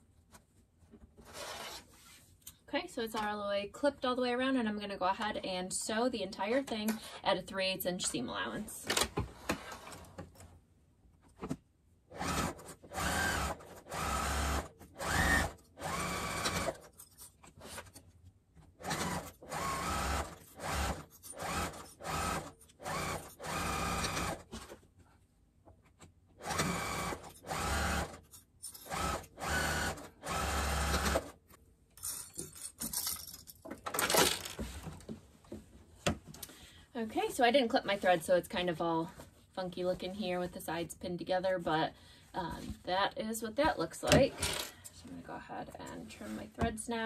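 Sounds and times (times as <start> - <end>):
sewing machine stitching: 12.1 - 16.9, 18.8 - 24.7, 26.4 - 31.4.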